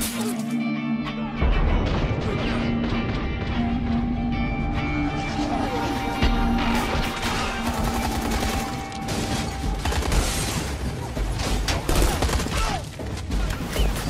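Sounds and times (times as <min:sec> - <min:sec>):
film score music: 0:00.0 - 0:14.0
rapid gunfire: 0:07.2 - 0:14.0.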